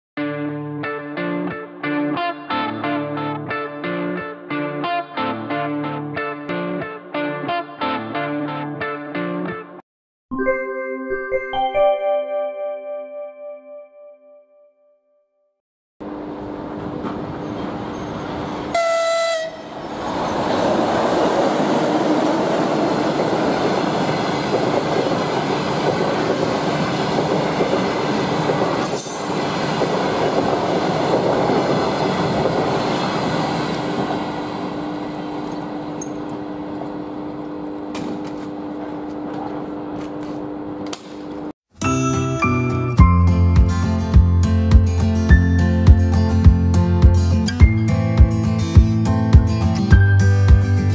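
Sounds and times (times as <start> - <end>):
passenger train passing: 16.0 - 37.9
locomotive horn blast: 18.6 - 19.8.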